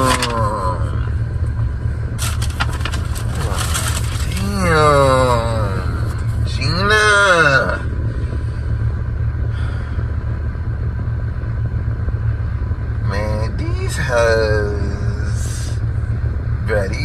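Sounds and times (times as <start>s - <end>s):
man exclaiming in admiration: 0.0s - 1.2s
car interior low hum: 0.0s - 17.0s.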